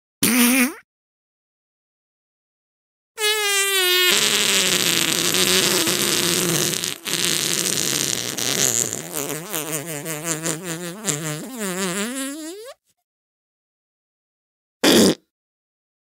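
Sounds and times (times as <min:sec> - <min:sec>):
fart sound effect: 0:00.2 - 0:00.8, 0:03.2 - 0:12.8, 0:14.8 - 0:15.3.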